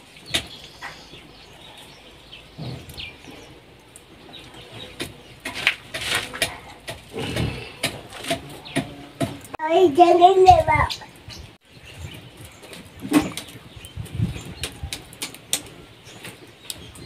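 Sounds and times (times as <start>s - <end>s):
birds chirping: 0.0s - 17.0s.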